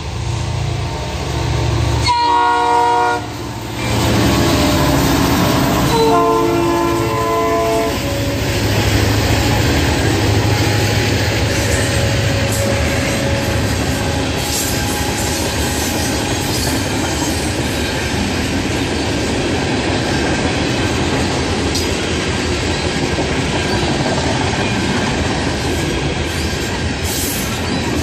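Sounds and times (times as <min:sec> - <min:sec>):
train rumbling by: 0:00.0 - 0:28.0
locomotive air horn blasts: 0:02.0 - 0:08.4, 0:10.4 - 0:16.5.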